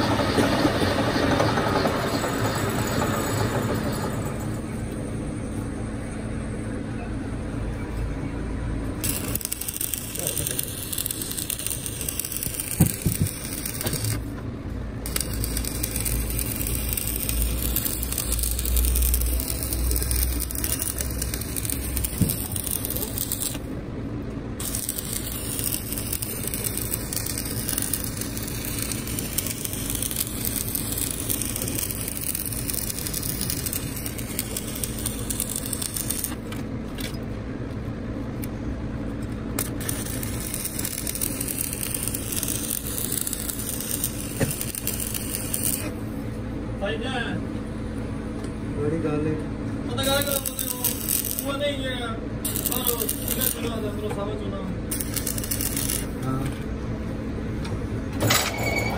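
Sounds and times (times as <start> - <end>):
arc welding crackling hiss: 9.0 - 14.3, 15.0 - 23.7, 24.6 - 36.4, 39.6 - 46.2, 50.0 - 56.6.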